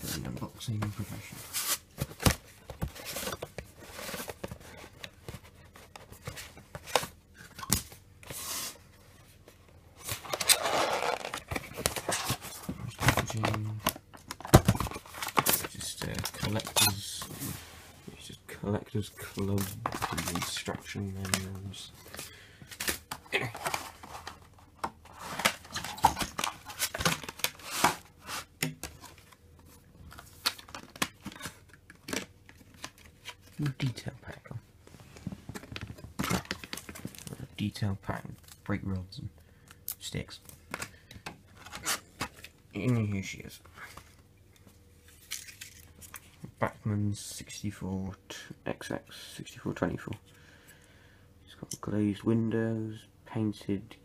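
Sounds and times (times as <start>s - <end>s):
cardboard and plastic packaging rustling: 0.0s - 18.0s, 18.6s - 38.6s
plastic packaging crinkling and clicking: 19.3s - 28.0s, 35.2s - 37.5s.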